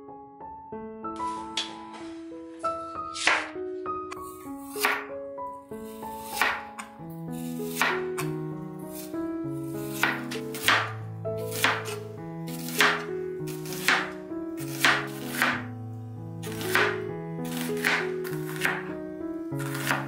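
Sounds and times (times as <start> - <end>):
soft background music: 0.0 - 20.0
knife slicing onion on board: 3.2 - 3.5, 4.2 - 5.0, 5.8 - 15.7, 16.4 - 19.0, 19.6 - 20.0.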